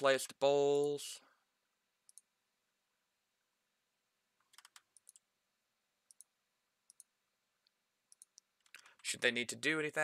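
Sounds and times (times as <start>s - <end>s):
computer mouse clicks: 2.1s - 2.3s, 4.4s - 5.2s, 6.1s - 6.3s, 6.9s - 7.1s, 8.1s - 9.0s.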